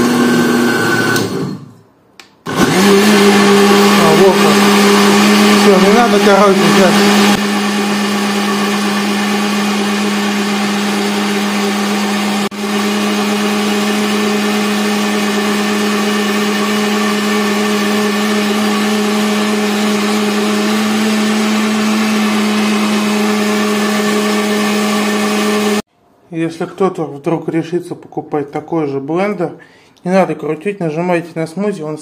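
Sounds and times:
blender motor hum: 0.0s - 1.8s, 2.5s - 25.9s.

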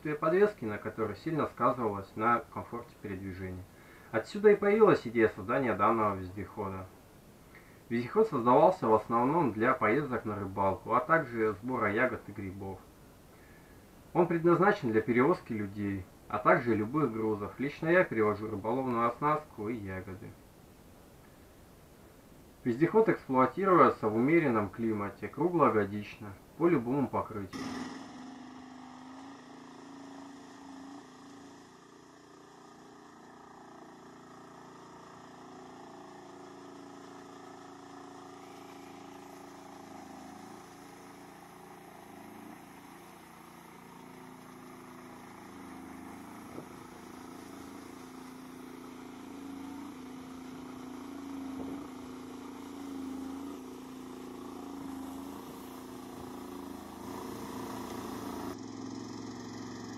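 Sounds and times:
vehicle engine running: 27.6s - 59.9s
water churned by wheels: 36.3s - 58.4s.

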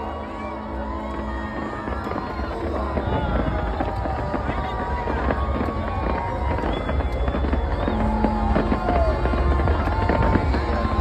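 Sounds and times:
fireworks crackling and popping: 0.0s - 11.0s
fireworks whistling: 0.0s - 11.0s
fireworks booms: 1.5s - 11.0s.

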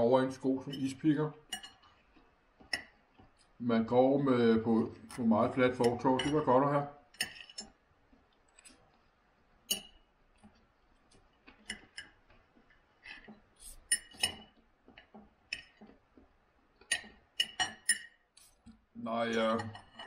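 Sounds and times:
cutlery clinking on a plate: 0.6s - 2.0s, 2.6s - 3.3s, 5.2s - 7.8s, 9.6s - 10.6s, 11.5s - 16.0s, 16.8s - 18.6s, 19.3s - 20.0s.

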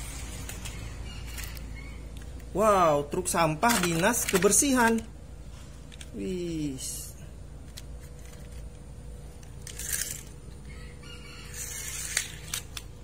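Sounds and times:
plastic toy scraping on tiled floor: 9.6s - 10.3s, 11.5s - 12.7s.

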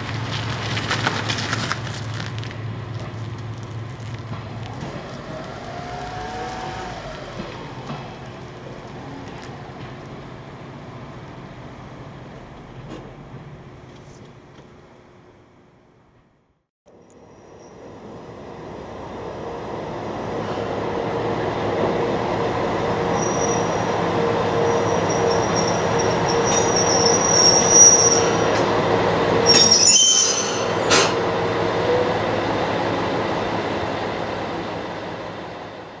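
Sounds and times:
diesel railcar engine humming: 0.0s - 16.3s, 16.9s - 36.0s
high wheel squeal: 4.7s - 8.1s, 17.2s - 18.1s, 23.0s - 33.0s.

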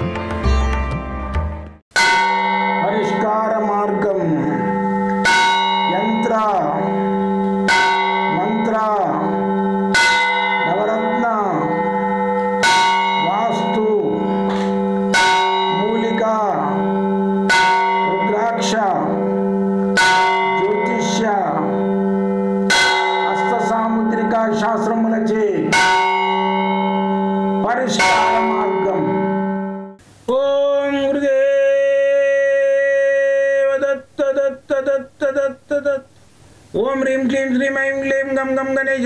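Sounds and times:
bell ringing: 2.0s - 30.0s.

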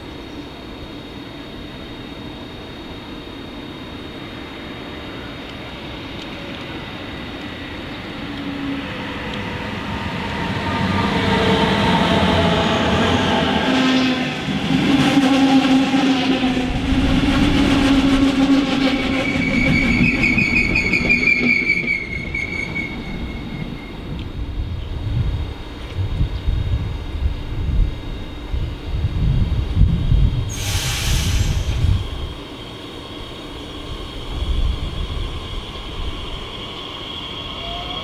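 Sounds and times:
electric train passing: 0.0s - 38.0s
locomotive drive whining: 5.4s - 24.4s.

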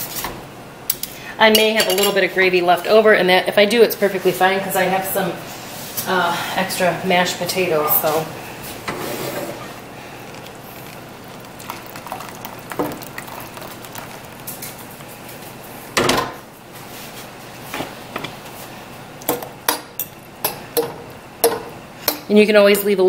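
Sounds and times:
gravy pouring: 8.4s - 15.7s.

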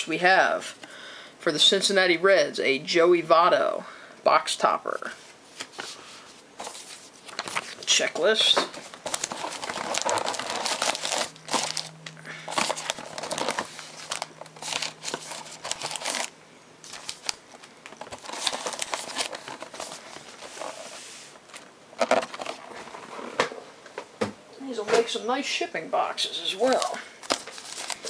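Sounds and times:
crinkling of card packs: 5.6s - 23.3s, 26.4s - 28.0s.

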